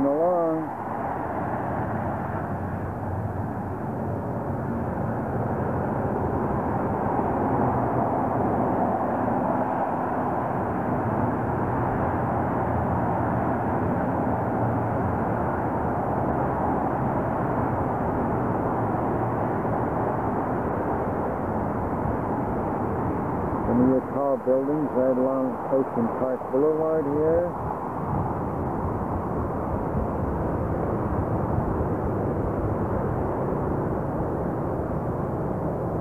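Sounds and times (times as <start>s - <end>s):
highway traffic drone: 0.0s - 36.0s.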